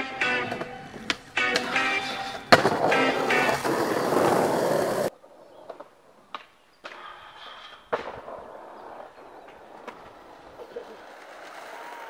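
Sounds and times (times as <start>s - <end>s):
skateboard wheels rolling on asphalt: 0.0s - 12.0s
skateboard grinding metal handrail: 0.2s - 5.1s
skateboard slapping down on landing: 0.4s - 5.1s.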